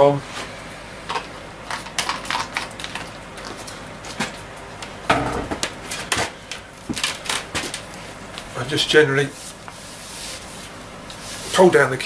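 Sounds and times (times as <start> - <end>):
knocks and clicks at workbench: 5.1 - 5.7.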